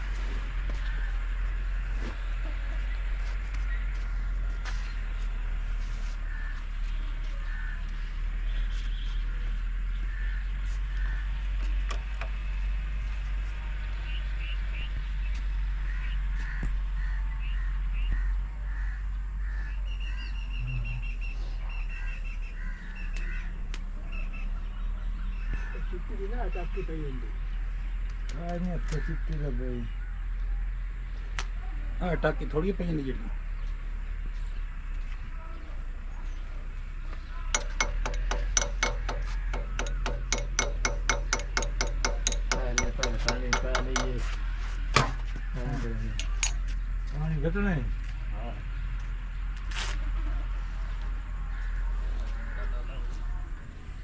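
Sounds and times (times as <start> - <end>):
steady low rumble: 0.0 - 28.6, 32.3 - 54.0
steady low hum: 0.0 - 54.0
crows cawing: 6.1 - 6.8, 7.4 - 8.1, 10.0 - 11.5, 15.8 - 20.4, 21.9 - 23.6, 28.7 - 29.6, 37.6 - 44.2
stationary engine clicking: 37.5 - 44.2.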